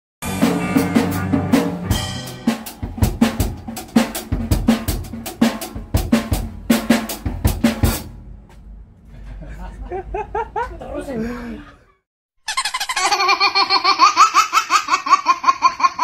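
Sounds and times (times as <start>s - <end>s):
held chord: 0.2s - 6.0s
bass and snare drum beat: 0.2s - 8.2s.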